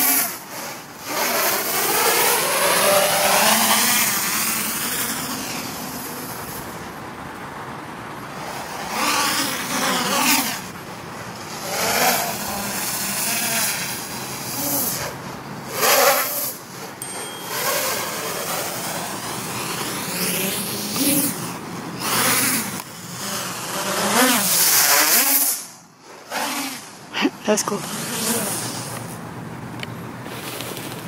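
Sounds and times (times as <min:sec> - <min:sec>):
quadcopter propellers whirring: 0:00.0 - 0:31.0.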